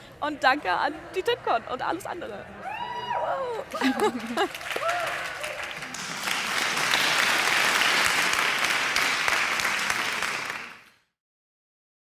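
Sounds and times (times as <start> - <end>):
applause: 3.8 - 11.1.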